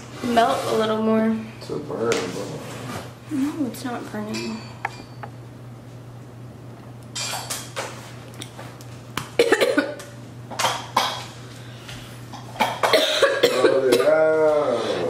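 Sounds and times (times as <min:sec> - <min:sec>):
person coughing: 0:09.4 - 0:10.0, 0:12.7 - 0:14.3.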